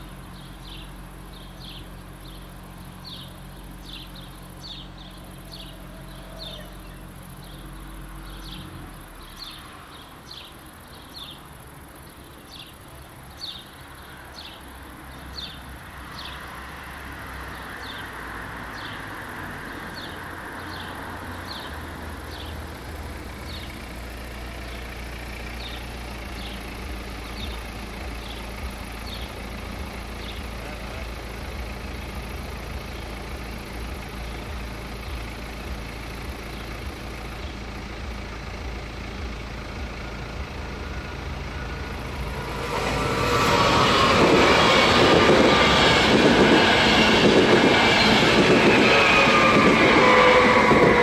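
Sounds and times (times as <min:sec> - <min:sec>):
bird chirping: 0:00.0 - 0:16.6, 0:19.9 - 0:22.6, 0:23.4 - 0:23.8, 0:25.6 - 0:29.4
car engine idling: 0:00.0 - 0:51.0.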